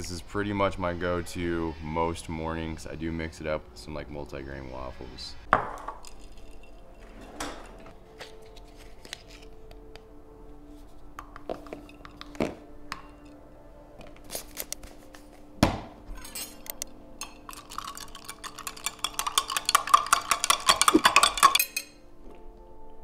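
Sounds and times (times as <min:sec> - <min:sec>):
spoon clinking against glass jar: 0:06.0 - 0:07.0, 0:16.2 - 0:22.0
scoop tapping: 0:17.2 - 0:21.8.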